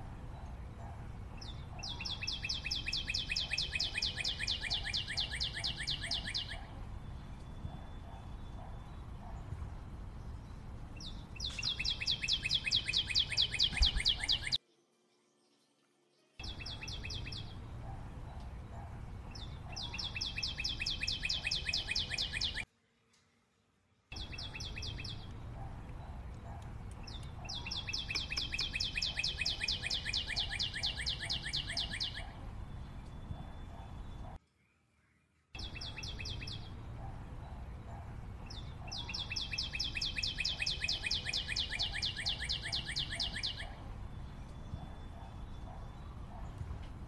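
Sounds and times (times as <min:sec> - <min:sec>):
songbird trilling: 0:01.4 - 0:06.7, 0:11.0 - 0:14.6, 0:19.3 - 0:22.6, 0:27.1 - 0:32.4, 0:38.5 - 0:46.0.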